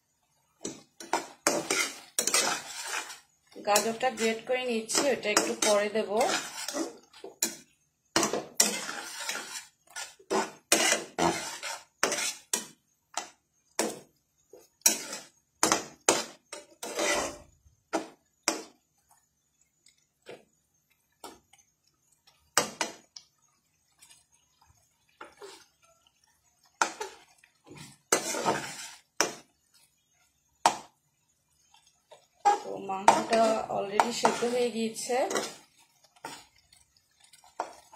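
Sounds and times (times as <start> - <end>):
spatula scraping metal pan: 0.6 - 18.7, 25.2 - 25.7, 26.7 - 29.4, 32.2 - 37.9.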